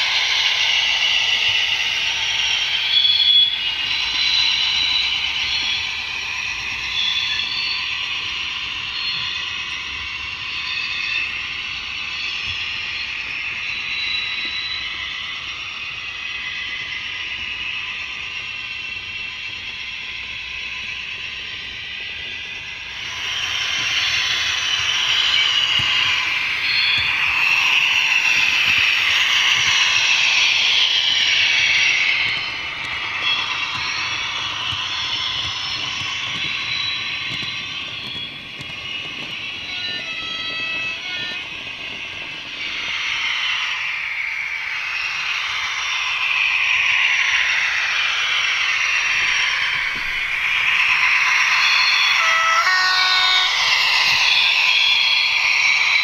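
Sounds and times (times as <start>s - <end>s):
model train wheels rattling on rails: 14.4s - 56.0s.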